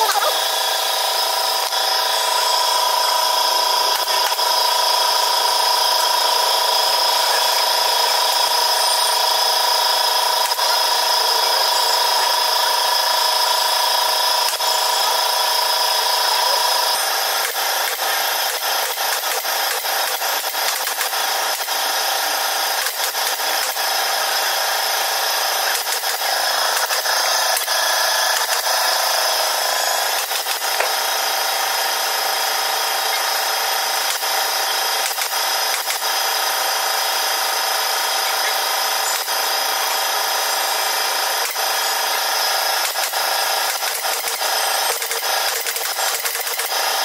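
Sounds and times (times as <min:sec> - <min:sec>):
staple gun clicks: 0:35.0 - 0:36.0.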